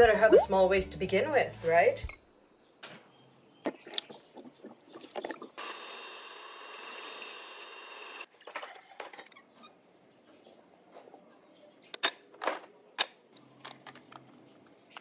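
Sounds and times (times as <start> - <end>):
electric frother whirring: 5.6 - 8.3.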